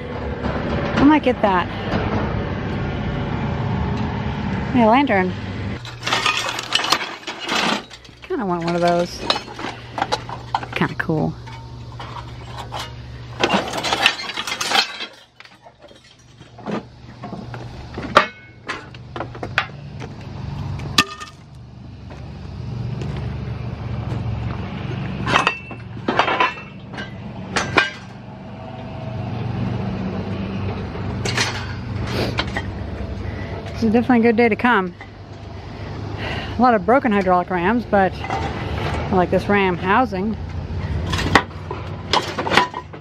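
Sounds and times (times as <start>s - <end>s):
steady low hum: 0.0s - 43.0s
scrap metal clanking: 5.8s - 19.8s, 25.2s - 28.2s, 31.2s - 32.8s, 40.8s - 43.0s.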